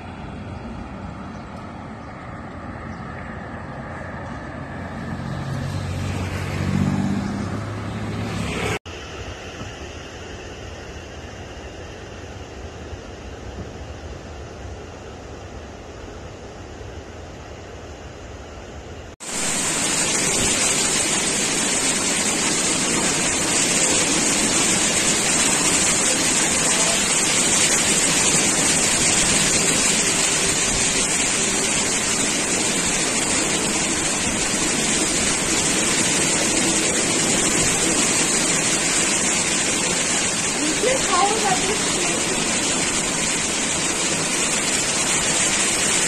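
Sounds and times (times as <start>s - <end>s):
heavy rain pouring: 5.1s - 8.8s, 19.2s - 46.0s
surf breaking on beach: 19.2s - 46.0s.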